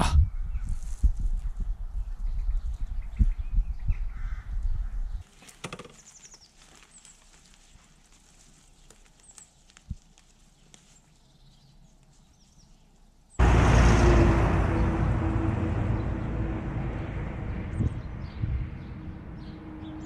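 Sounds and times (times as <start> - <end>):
wind buffeting microphone: 0.0 - 5.2, 14.2 - 20.0.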